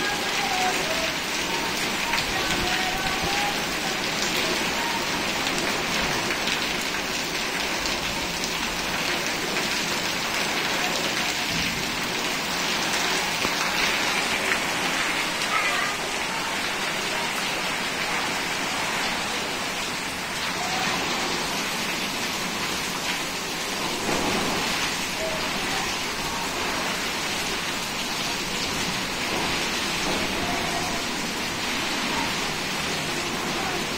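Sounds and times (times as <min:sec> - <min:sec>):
heavy rain: 0:00.0 - 0:33.9
water splashing on tiled floor: 0:00.0 - 0:33.9.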